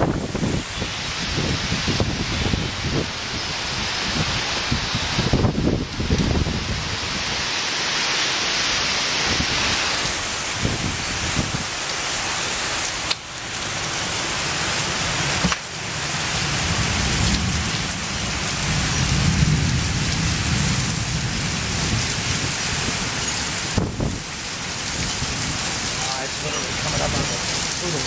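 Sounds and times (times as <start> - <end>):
heavy rain pouring: 0.0 - 28.0
thunder rumbling: 15.1 - 28.0.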